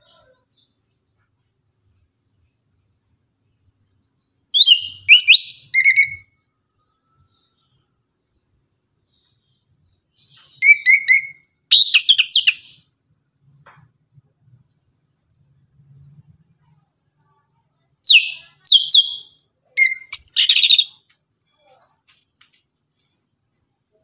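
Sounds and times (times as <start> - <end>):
thrush singing whistled phrases: 4.6 - 6.3, 10.5 - 12.7, 18.1 - 21.0.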